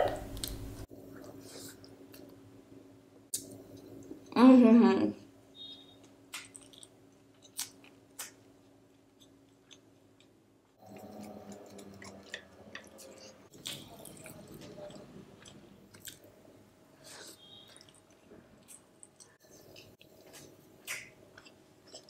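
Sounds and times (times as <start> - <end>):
wet chewing: 6.0 - 16.3.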